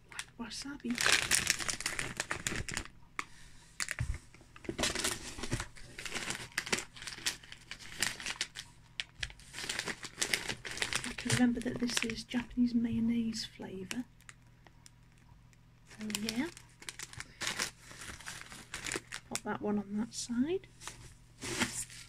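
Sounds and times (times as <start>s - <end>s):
plastic snack packets crinkling: 0.1s - 3.0s, 4.6s - 12.5s, 15.9s - 19.6s.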